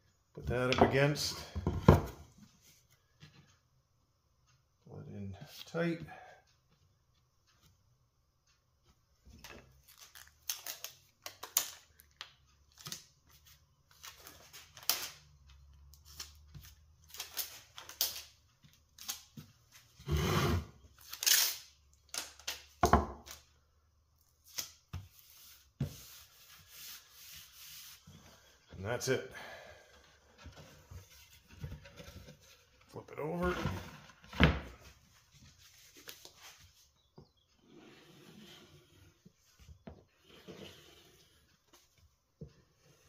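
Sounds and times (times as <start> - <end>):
packing tape tearing: 21.0 - 22.6.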